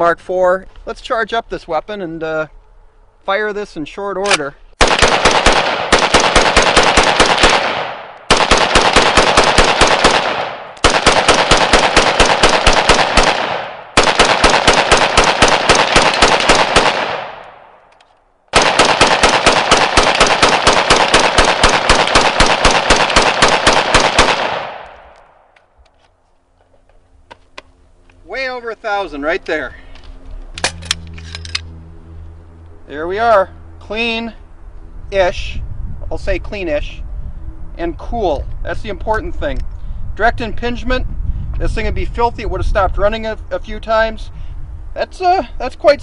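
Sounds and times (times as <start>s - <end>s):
rifle firing rapidly: 4.8s - 17.6s, 18.5s - 25.0s
gunshot echo: 4.8s - 17.8s, 18.5s - 25.5s.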